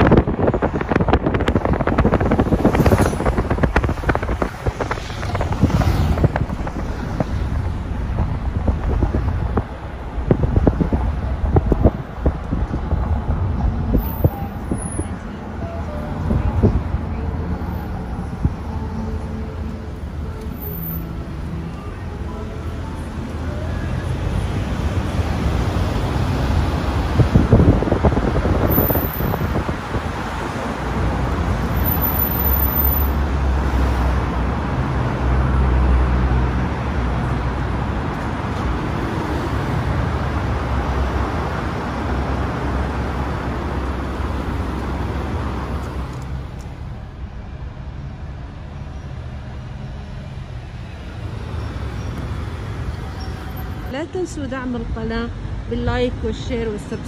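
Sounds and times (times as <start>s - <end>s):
road traffic rumble: 0.0s - 57.0s.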